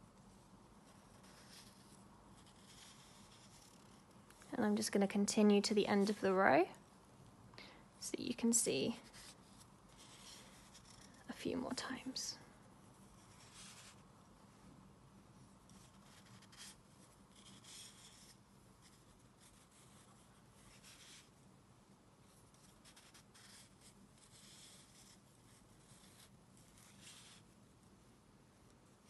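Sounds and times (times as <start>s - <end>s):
knitting needles and yarn rubbing: 0.0s - 6.8s, 8.1s - 14.2s, 15.3s - 21.4s, 22.2s - 29.0s.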